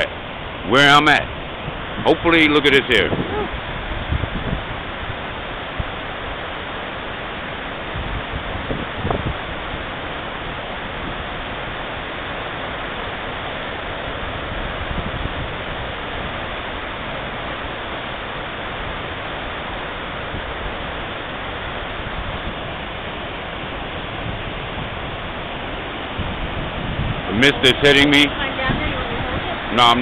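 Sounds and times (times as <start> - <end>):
waterfall rushing: 0.0 - 30.0.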